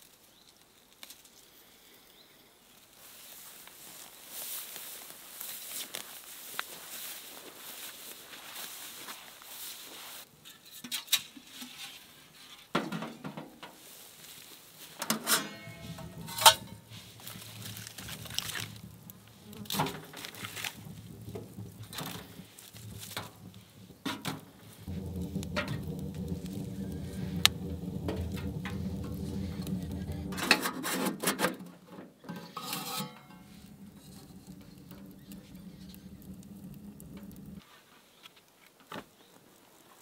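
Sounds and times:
wood fire crackling: 0:00.0 - 0:01.7, 0:13.7 - 0:37.7
metal stove door clanking: 0:15.0 - 0:31.7, 0:32.3 - 0:37.6.

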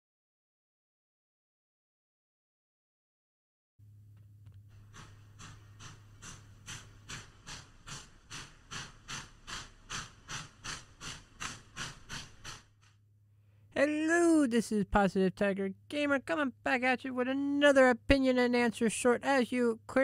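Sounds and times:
steady low hum: 0:03.8 - 0:20.0
steam locomotive chuffing: 0:04.7 - 0:13.0.

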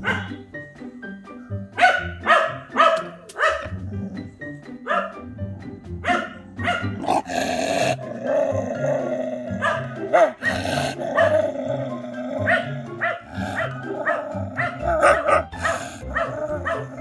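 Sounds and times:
dog barking: 0:00.0 - 0:00.4, 0:01.8 - 0:03.8, 0:04.8 - 0:05.3, 0:06.0 - 0:08.1, 0:09.5 - 0:11.6, 0:12.4 - 0:17.0
background music: 0:00.0 - 0:17.0.

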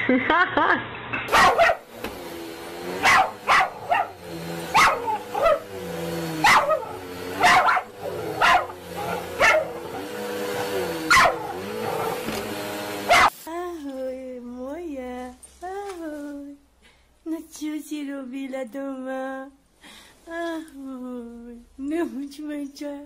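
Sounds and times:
dog barking: 0:01.3 - 0:01.9, 0:03.0 - 0:05.7, 0:06.4 - 0:12.3, 0:13.1 - 0:13.3
dog whining: 0:01.3 - 0:01.9, 0:03.0 - 0:12.3.

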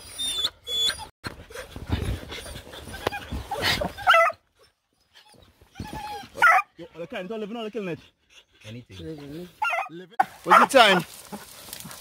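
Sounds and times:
dog whining: 0:00.0 - 0:01.1, 0:02.4 - 0:06.6
dog panting hard: 0:06.8 - 0:09.6.

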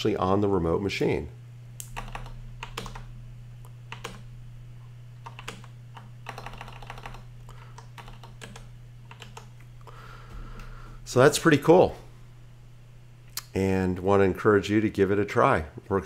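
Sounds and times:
steady low hum: 0:00.0 - 0:16.0
typing on computer keyboard: 0:01.8 - 0:03.1, 0:03.9 - 0:04.2, 0:05.2 - 0:09.5.

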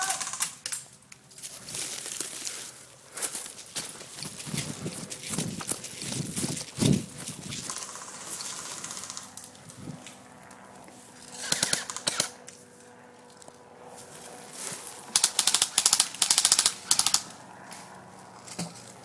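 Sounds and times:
airsoft guns firing bursts: 0:00.0 - 0:00.6, 0:07.6 - 0:09.3, 0:11.3 - 0:12.4, 0:15.1 - 0:17.3.

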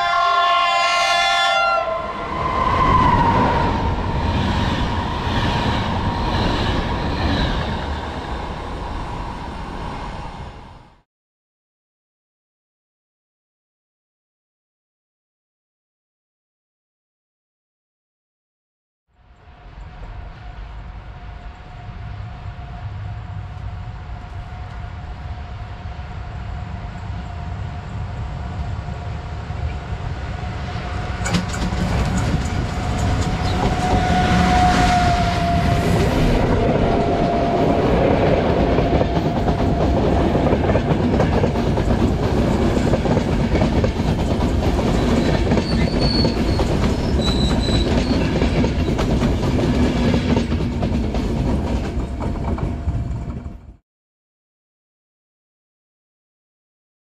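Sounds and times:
train passing: 0:00.0 - 0:11.0, 0:19.1 - 0:53.8
wheels clacking over rail joints: 0:31.2 - 0:34.6.

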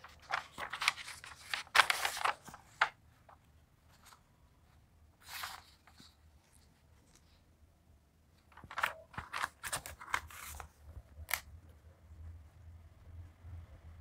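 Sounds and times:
paper pages rustling: 0:00.0 - 0:04.3, 0:05.2 - 0:07.4, 0:08.4 - 0:11.5.

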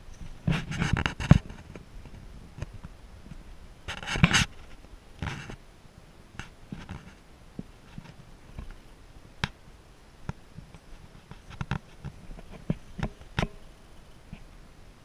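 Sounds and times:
camera handling rustle: 0:00.5 - 0:01.9, 0:03.9 - 0:05.6.

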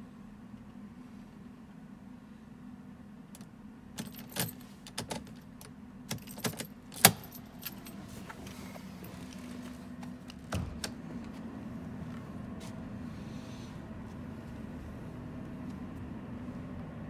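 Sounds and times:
steady low hum: 0:00.0 - 0:17.0
metallic clicks and jingling: 0:03.4 - 0:08.0.

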